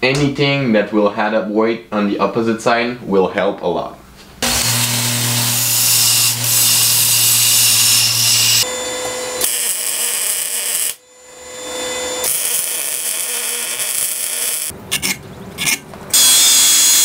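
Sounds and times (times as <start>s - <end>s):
arc welder hissing and crackling: 4.4s - 8.7s, 9.4s - 11.0s, 11.6s - 14.7s
belt grinder grinding steel: 4.4s - 17.0s.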